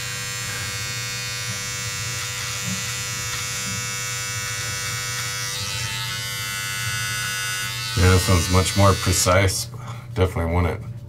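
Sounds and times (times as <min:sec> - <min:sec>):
electric trimmer buzzing: 0:00.0 - 0:09.5.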